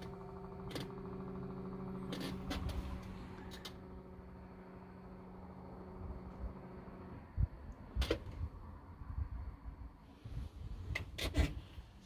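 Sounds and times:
hydraulic pump motor humming: 0.0s - 8.6s.

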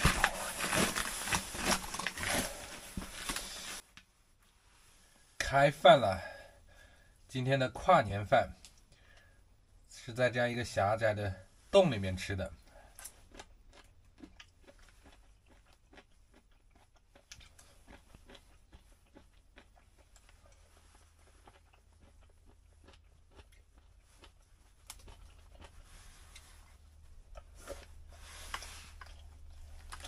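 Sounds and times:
person chewing: 0.0s - 3.8s, 12.7s - 30.0s.

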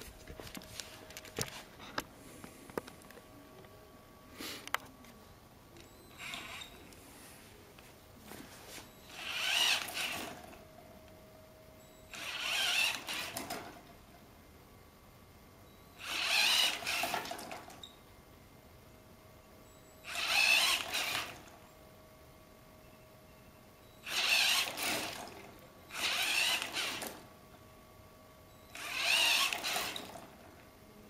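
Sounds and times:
motor whirring: 6.1s - 6.9s, 9.1s - 10.6s, 12.1s - 13.7s, 16.0s - 17.4s, 20.0s - 21.5s, 24.0s - 25.3s, 25.9s - 27.3s, 28.7s - 30.3s.

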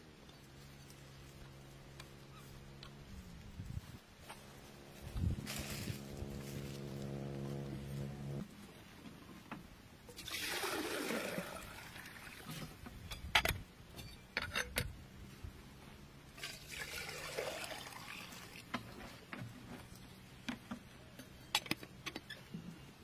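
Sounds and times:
water pouring from plastic can: 10.2s - 12.7s, 16.4s - 18.7s.

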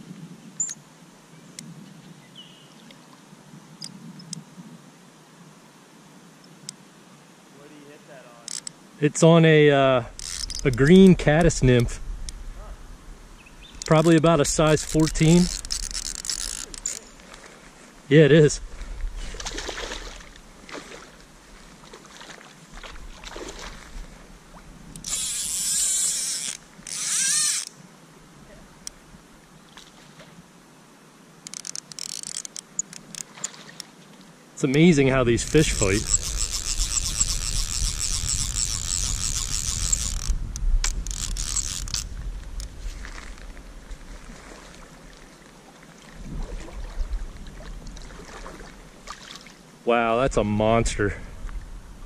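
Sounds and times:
fishing reel drag buzzing: 8.4s - 8.8s, 10.1s - 11.8s, 13.6s - 17.2s, 24.9s - 27.8s, 31.4s - 33.3s, 35.2s - 42.7s
faint splashing water: 13.8s - 24.8s, 32.8s - 34.9s, 43.0s - 49.7s.

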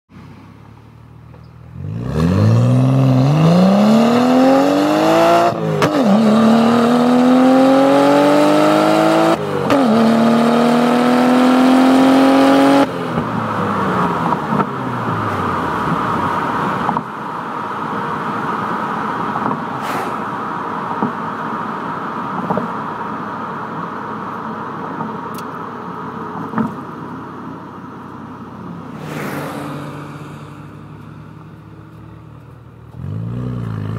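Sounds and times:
car engine at full throttle: 0.1s - 33.9s
rushing noise: 19.4s - 21.3s, 28.7s - 31.0s.

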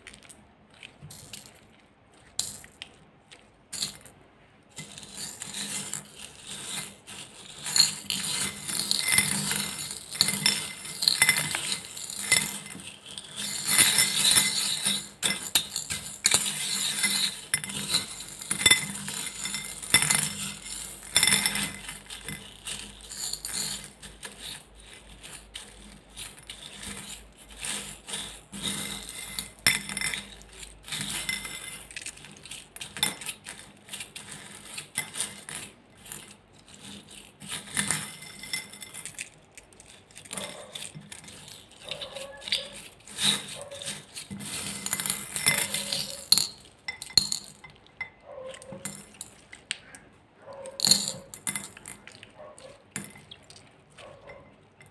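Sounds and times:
wet slime squishing: 0.0s - 3.7s, 47.7s - 50.8s, 51.8s - 54.9s
beads clinking against glass: 3.7s - 4.1s, 4.7s - 49.4s, 50.6s - 53.6s.

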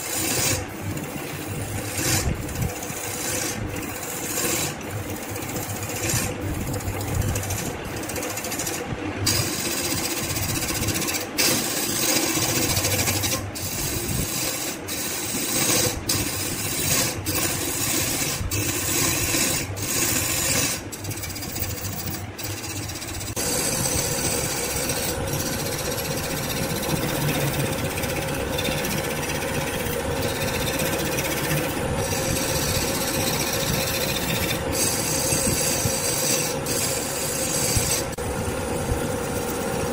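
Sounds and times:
gouge scraping on lathe: 0.0s - 39.9s
lathe motor running: 0.0s - 39.9s.

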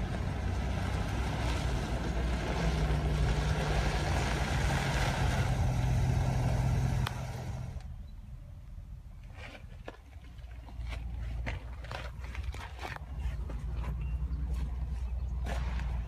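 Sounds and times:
car engine running: 0.0s - 7.9s.

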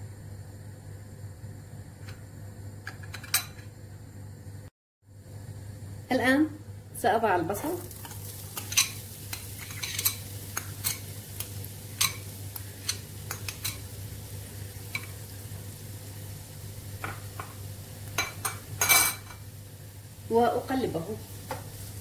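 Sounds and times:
onion sizzling in oil: 5.1s - 22.0s
metal spoon scraping and tapping: 8.0s - 11.1s, 12.0s - 13.8s.

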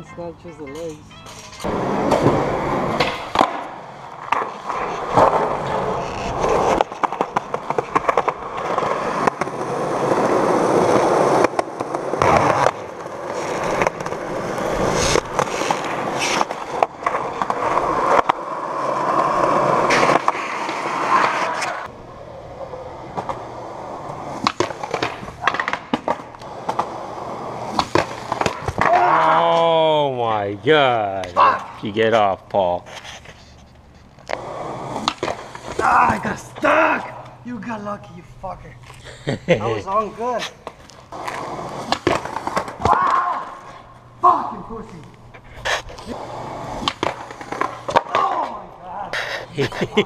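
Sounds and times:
skateboard clacking on ground: 0.0s - 21.9s, 23.1s - 27.0s, 27.6s - 29.8s, 34.2s - 37.3s, 40.4s - 44.0s, 46.0s - 48.8s
skateboard wheels rolling on concrete: 0.7s - 50.0s.

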